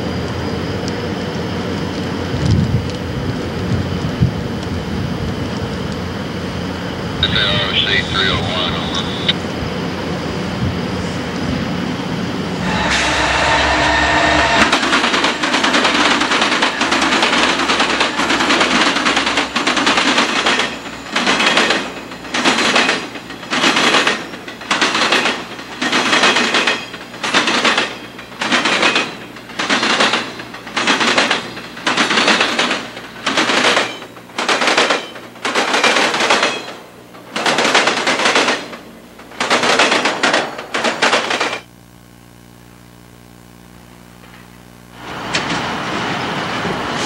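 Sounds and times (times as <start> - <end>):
train wheels clattering over rail joints: 14.3 - 41.6, 45.2 - 47.0.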